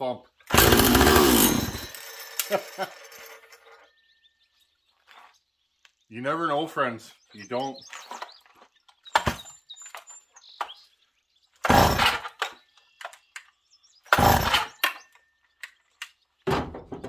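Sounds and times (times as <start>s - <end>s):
chainsaw pull-start recoil rope: 0.5s - 3.4s, 11.6s - 12.5s, 14.1s - 14.8s.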